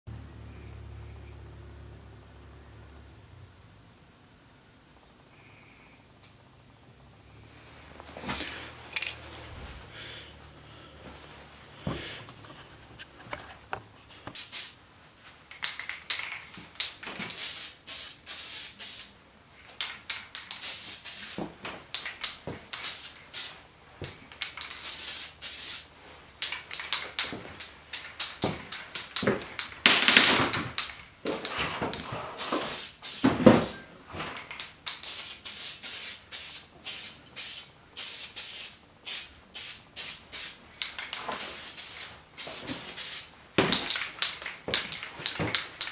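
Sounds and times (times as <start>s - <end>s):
aerosol can spraying: 14.4s - 14.8s, 17.3s - 19.2s, 19.8s - 23.6s, 24.3s - 25.9s, 32.4s - 33.8s, 34.5s - 43.3s.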